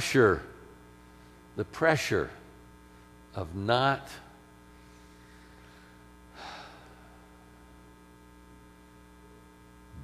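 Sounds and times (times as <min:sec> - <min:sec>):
electrical mains hum: 0:00.0 - 0:10.0
person breathing: 0:04.8 - 0:07.6.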